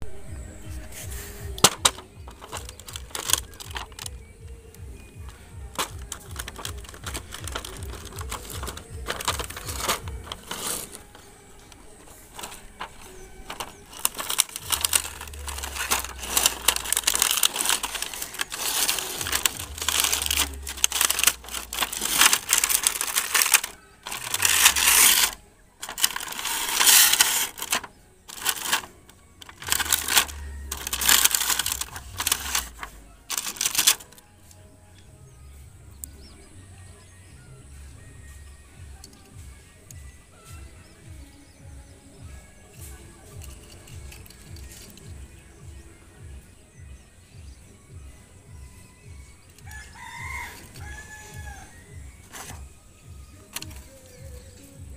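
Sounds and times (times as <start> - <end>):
packaging crinkling and rustling: 0.9 - 4.4, 5.2 - 34.3, 43.4 - 45.2, 49.6 - 52.7, 53.4 - 54.4.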